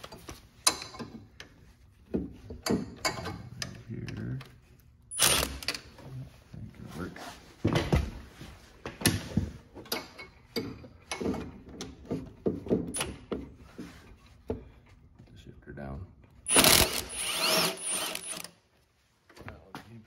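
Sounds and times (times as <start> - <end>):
metal tools knocking and clicking: 2.5 - 3.8.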